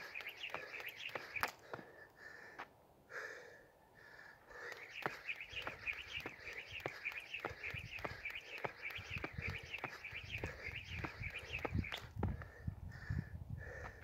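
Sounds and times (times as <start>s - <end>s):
skipping rope slapping dirt: 0.0s - 2.0s, 4.6s - 12.6s
birds chirping: 0.0s - 2.2s, 3.9s - 13.2s
hard gasping breaths: 0.0s - 5.3s, 6.2s - 14.0s.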